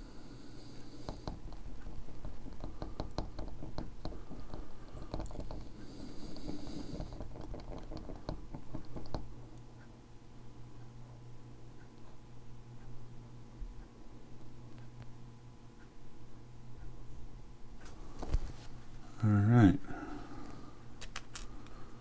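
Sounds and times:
paint bottle clicking and tapping: 0:01.2 - 0:05.6, 0:07.1 - 0:09.3.

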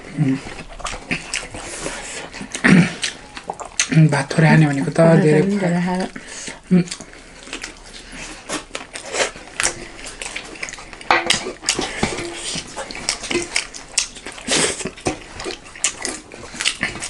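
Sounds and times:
chewing and lip smacking: 0:00.0 - 0:17.0
plates and utensils clinking: 0:11.0 - 0:13.6.

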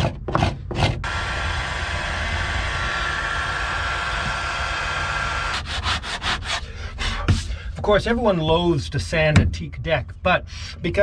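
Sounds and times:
heat gun fan blowing: 0:01.0 - 0:06.7
scraper rasping on wood: 0:05.5 - 0:07.5.

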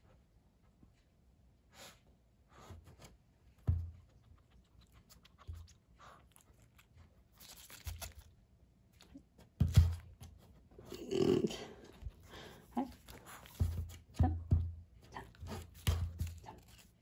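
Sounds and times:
lettuce leaf rustling and crinkling: 0:06.3 - 0:08.4, 0:15.5 - 0:17.0.

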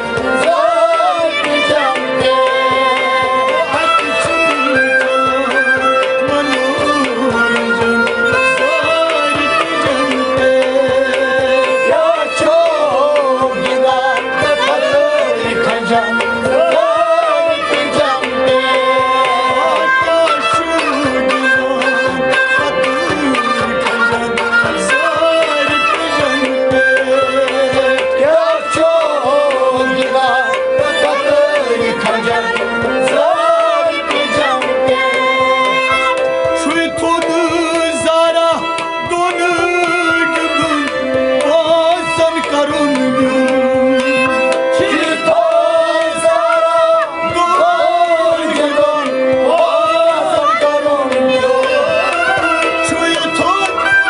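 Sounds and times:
tabla drumming: 0:00.0 - 0:54.0.

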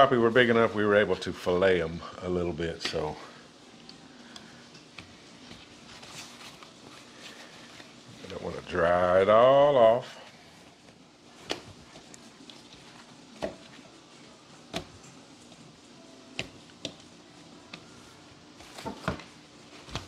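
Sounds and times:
paper towel rustling: 0:05.1 - 0:14.6.

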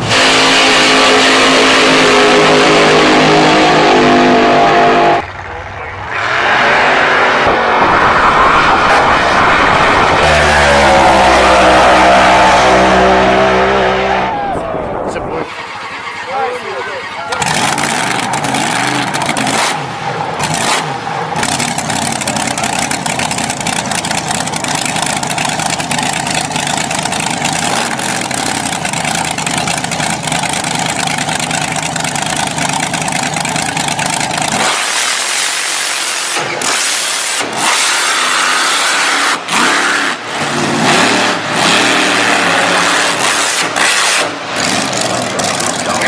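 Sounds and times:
truck engine revving hard: 0:00.0 - 0:46.0
truck engine idling loudly: 0:04.5 - 0:06.4, 0:14.4 - 0:34.6, 0:44.5 - 0:46.0.

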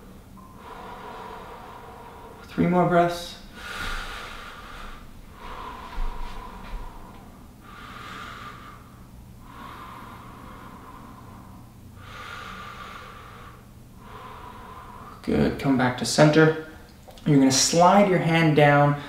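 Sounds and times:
deep breathing through mouth: 0:00.0 - 0:02.6, 0:03.4 - 0:15.2.

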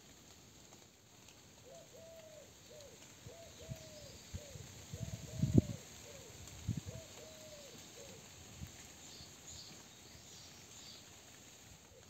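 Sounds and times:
dove cooing: 0:01.6 - 0:08.3
small birds chirping: 0:01.7 - 0:06.3, 0:08.9 - 0:11.3.

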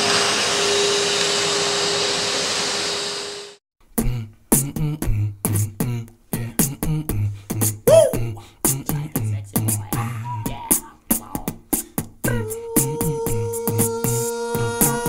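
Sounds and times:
vacuum cleaner whine: 0:00.0 - 0:03.6
beatboxed kick thumps: 0:04.0 - 0:14.7
beatboxed hissing hi-hat: 0:04.0 - 0:15.0.

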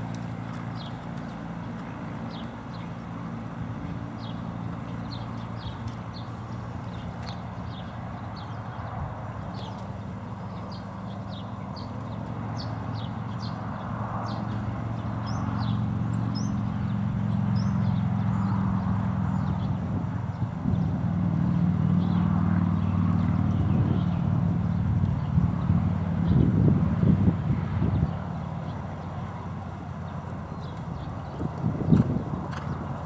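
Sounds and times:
engine drone: 0:00.0 - 0:33.0
small birds chirping: 0:00.0 - 0:33.0.

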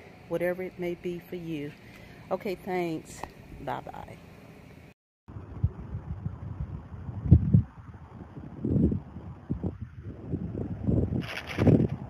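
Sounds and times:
wind buffeting microphone: 0:05.3 - 0:12.0.

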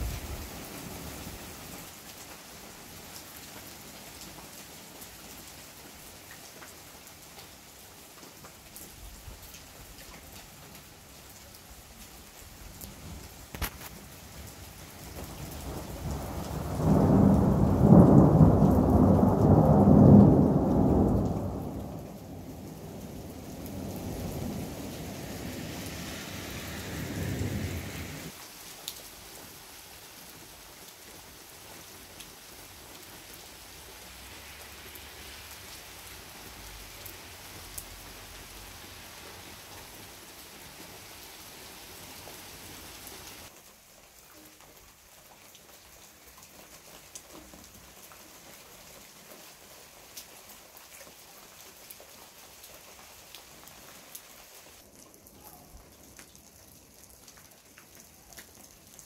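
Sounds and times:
steady rain: 0:00.0 - 0:59.0
thunder rumbling: 0:15.3 - 0:28.3.

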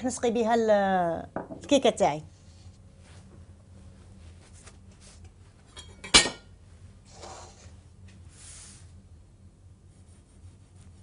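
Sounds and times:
soft rustle of handling: 0:02.3 - 0:05.8.

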